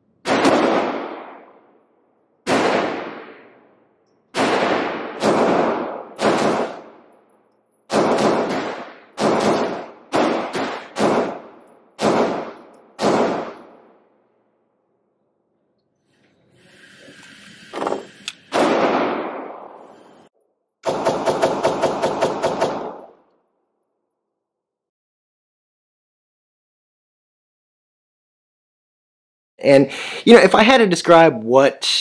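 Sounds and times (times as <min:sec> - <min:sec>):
pistol shots echoing indoors: 0:00.2 - 0:14.8, 0:18.5 - 0:20.1, 0:20.8 - 0:23.4.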